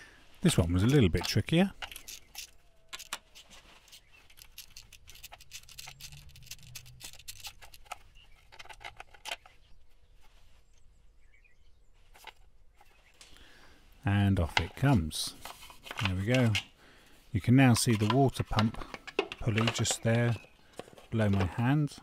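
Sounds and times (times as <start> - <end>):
socket ratchet clicking: 4.3 - 8.0.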